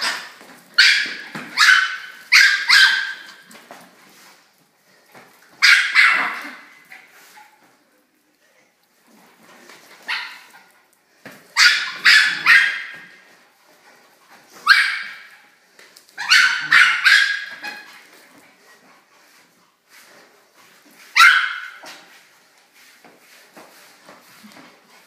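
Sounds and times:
small dog yapping: 5.6s - 6.7s, 11.6s - 13.0s, 16.2s - 17.9s.

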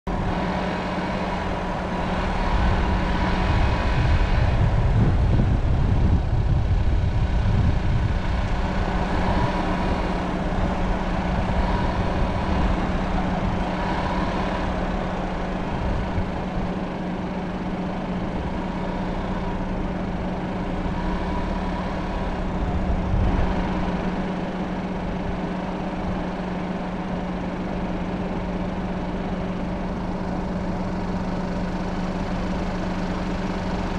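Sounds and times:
vehicle engine running: 0.0s - 33.9s
deep low rumble: 0.1s - 26.4s.

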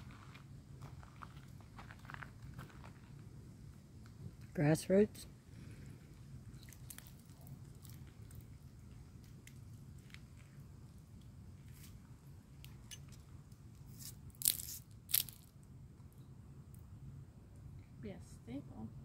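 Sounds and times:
grass and debris crackling: 0.0s - 4.8s, 5.6s - 15.7s
low background rumble: 0.0s - 19.0s.

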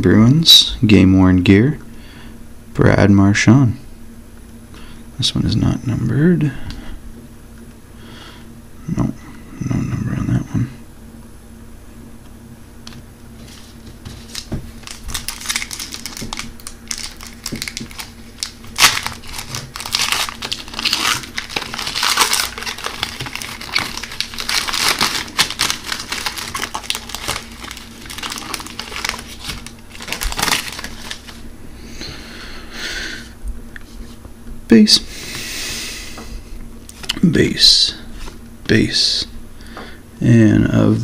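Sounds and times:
foil wrapper crinkling: 13.4s - 31.4s.

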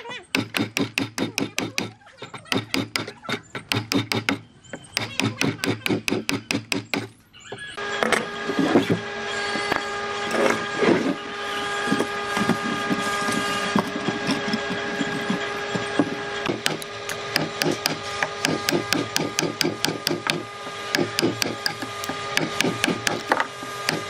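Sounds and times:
power tool motor whining: 0.0s - 24.0s
wood scraping: 8.1s - 24.0s.

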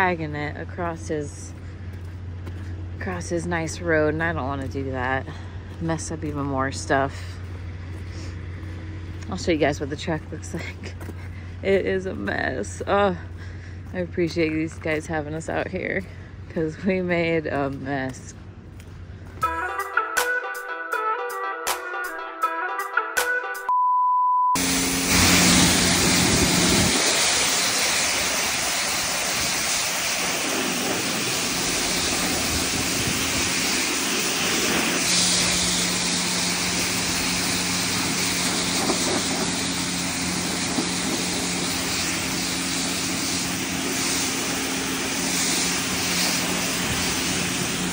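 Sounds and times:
low hum: 0.0s - 17.6s, 24.6s - 47.9s
guitar music: 19.4s - 23.7s
single steady beep: 23.7s - 24.6s
pressure washer spray hissing: 24.6s - 47.9s.

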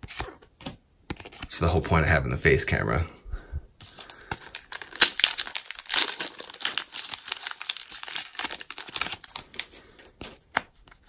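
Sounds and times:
foil wrapper crinkling: 3.9s - 10.6s
foil pack tearing: 4.1s - 9.7s.

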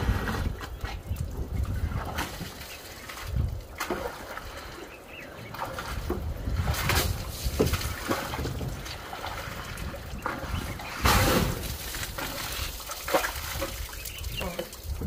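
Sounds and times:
mud and water sloshing: 0.0s - 15.0s
splatter rush: 5.7s - 15.0s.

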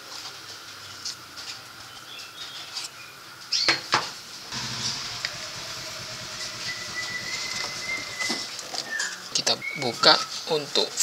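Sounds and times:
steady rushing noise: 4.5s - 8.6s
low hum: 4.5s - 8.8s.

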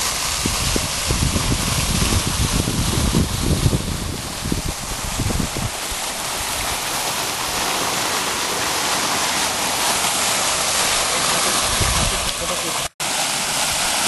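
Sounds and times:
fountain water splashing into pool: 0.0s - 14.0s
low rumbles on microphone: 0.4s - 5.8s.

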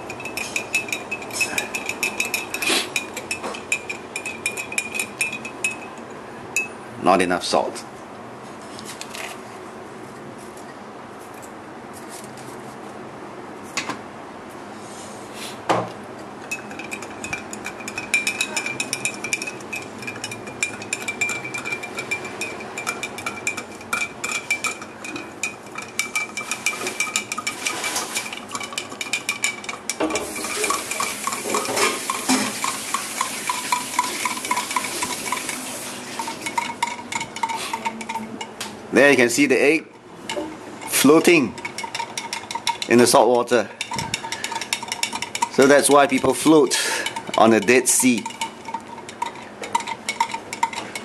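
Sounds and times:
metal spoon clinking in glass mug: 0.0s - 6.0s, 16.4s - 38.5s, 40.3s - 43.2s, 43.8s - 51.0s.

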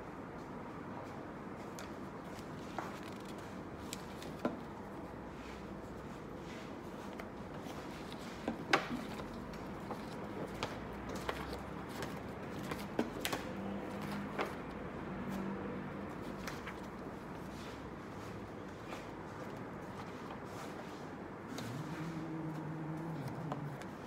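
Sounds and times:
paper envelopes rustling: 2.3s - 15.5s.

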